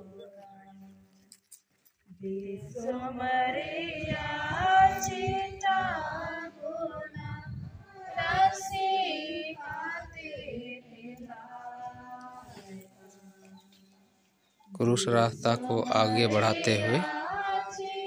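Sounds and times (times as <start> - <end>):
congregation singing a hymn: 2.2 - 13.6, 15.2 - 18.0.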